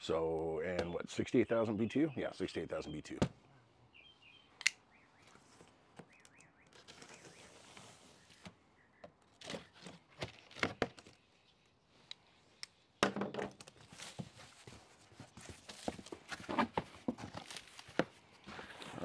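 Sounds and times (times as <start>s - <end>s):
soft rustle: 6.8s - 8.5s, 13.8s - 19.0s
packaging being handled: 13.7s - 19.0s.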